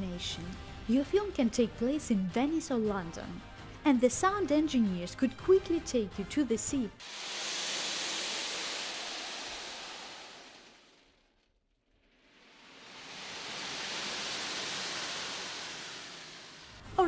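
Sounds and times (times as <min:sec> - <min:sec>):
wave machine hissing surges: 0:07.0 - 0:11.0, 0:12.2 - 0:16.8.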